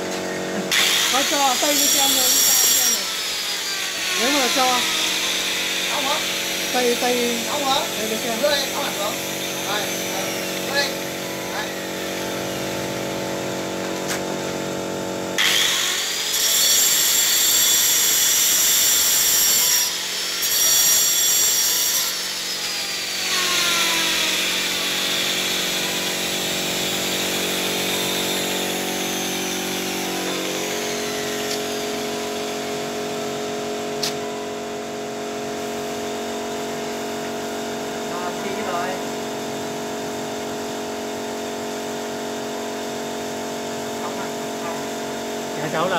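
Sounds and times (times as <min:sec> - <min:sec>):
steady machine hum: 0:00.0 - 0:17.2, 0:22.2 - 0:45.9
power tool whining: 0:00.0 - 0:45.9
single click: 0:34.0 - 0:34.2.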